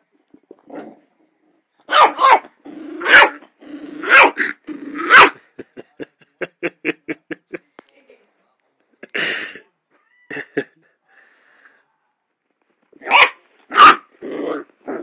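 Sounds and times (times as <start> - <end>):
puppy barking: 1.9 - 3.4, 4.0 - 5.4, 13.0 - 14.6
puppy yapping: 1.9 - 3.4, 4.0 - 5.4, 13.0 - 14.7
puppy growling: 2.4 - 5.4, 13.8 - 15.0.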